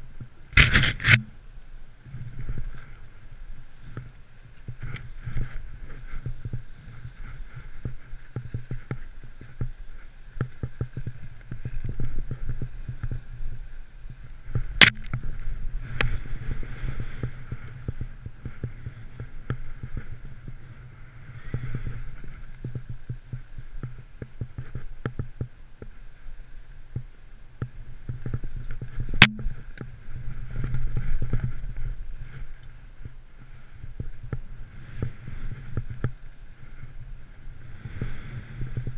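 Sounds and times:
wind: 0:00.0 - 0:38.9
sharp clicks: 0:00.5 - 0:01.3
snowboard rumbling on snow: 0:02.0 - 0:38.9.

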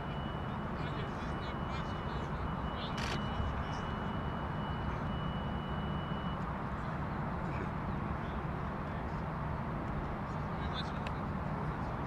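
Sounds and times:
faint high whine: 0:00.0 - 0:07.3.

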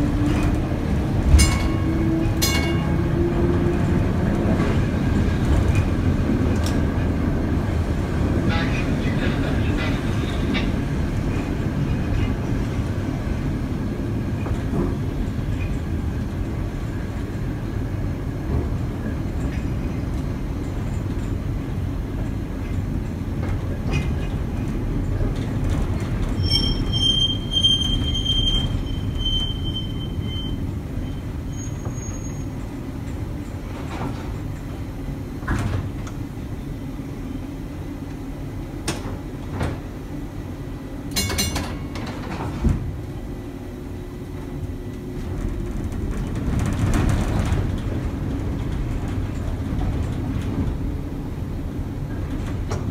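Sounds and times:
streetcar wheels rumbling on rail: 0:00.0 - 0:52.9
high-pitched wheel squeal: 0:26.4 - 0:32.6.

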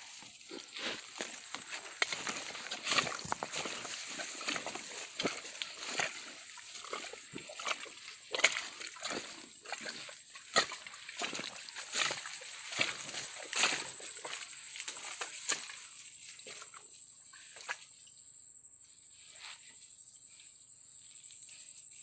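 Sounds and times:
footsteps in dry leaves: 0:00.0 - 0:16.0.

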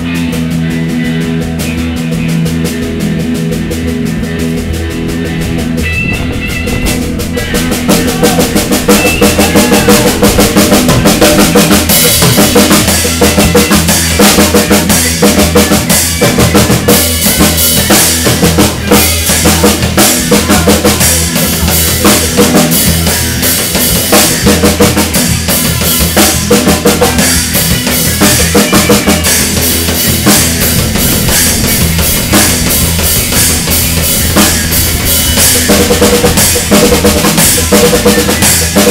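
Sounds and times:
bass guitar: 0:00.0 - 0:38.9
drum kit: 0:00.0 - 0:38.9
electric guitar: 0:00.0 - 0:38.9.

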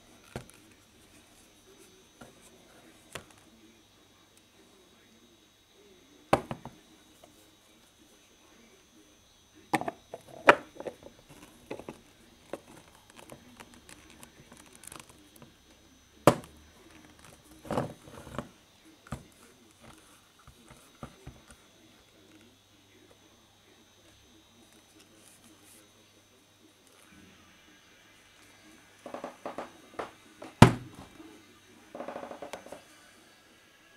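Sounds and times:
object handled on wooden workbench: 0:06.4 - 0:06.8, 0:09.8 - 0:12.8, 0:17.2 - 0:18.5, 0:29.1 - 0:31.1.

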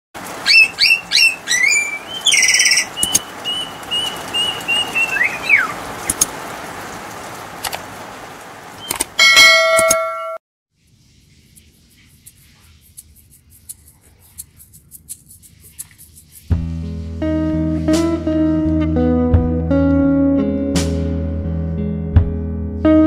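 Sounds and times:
falling bird-like chirps: 0:00.4 - 0:06.2
ringing bell chime: 0:09.2 - 0:10.4.

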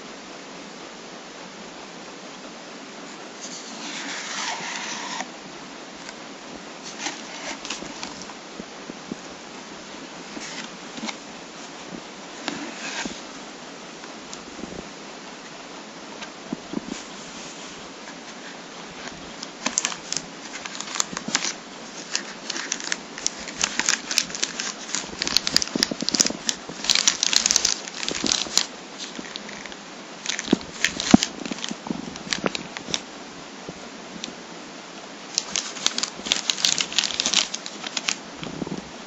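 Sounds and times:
plastic bag crinkling: 0:06.8 - 0:08.3, 0:18.3 - 0:33.1, 0:35.3 - 0:38.6.

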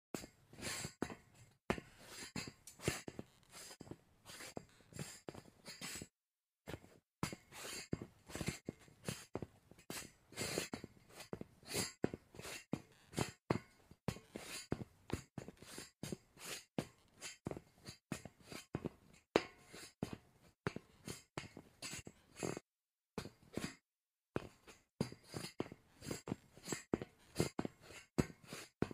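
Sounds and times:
footsteps on metal grate: 0:01.0 - 0:04.0, 0:24.4 - 0:28.9.

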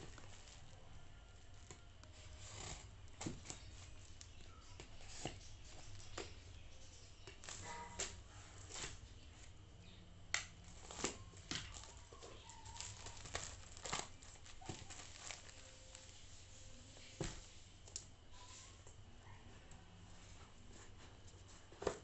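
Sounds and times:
plastic bag crinkling: 0:00.0 - 0:05.2, 0:10.6 - 0:17.2.

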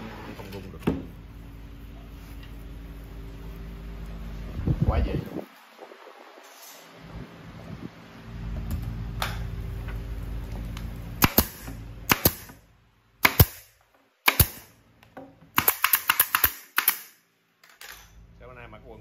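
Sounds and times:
low machine hum: 0:00.0 - 0:06.4, 0:07.0 - 0:13.3, 0:17.9 - 0:19.0
nailing impacts on wood: 0:11.2 - 0:12.6, 0:13.2 - 0:14.7, 0:15.5 - 0:17.1.

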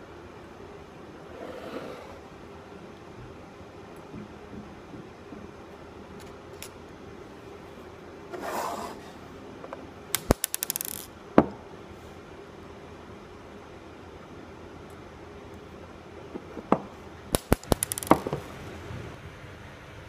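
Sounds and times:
ball bearings clicking in a dish: 0:10.1 - 0:11.1, 0:17.4 - 0:18.3.

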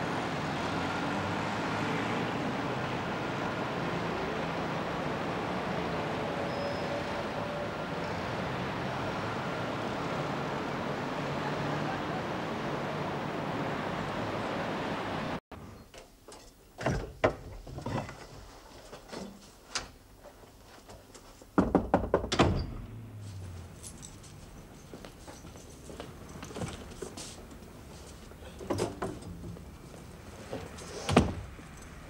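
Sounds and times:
car passing: 0:00.0 - 0:15.4.

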